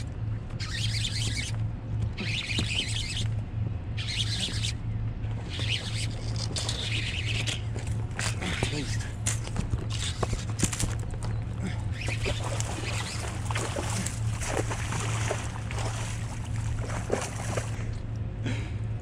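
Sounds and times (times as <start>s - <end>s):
steady low hum: 0.0s - 19.0s
water splashing: 12.0s - 18.0s.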